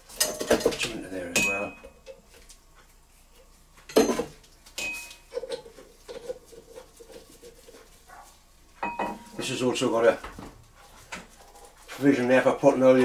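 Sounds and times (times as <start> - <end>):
ringing metallic clink: 4.8 - 5.2, 8.8 - 9.3.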